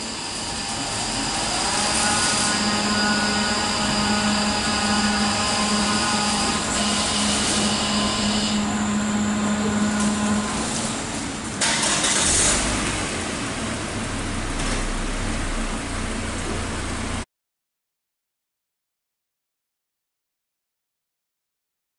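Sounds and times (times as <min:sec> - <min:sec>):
motorized doors folding open: 0:00.0 - 0:13.1
car wash machinery humming: 0:00.0 - 0:17.3
car engine starting and idling: 0:00.6 - 0:17.2.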